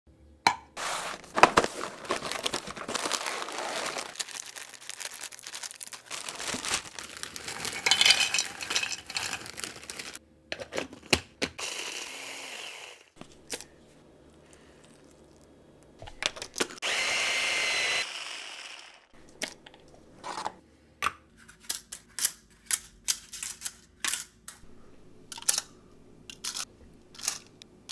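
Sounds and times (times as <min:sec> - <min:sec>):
cardboard box rustling: 0:00.8 - 0:07.8
scissors cutting plastic bag: 0:00.8 - 0:10.2.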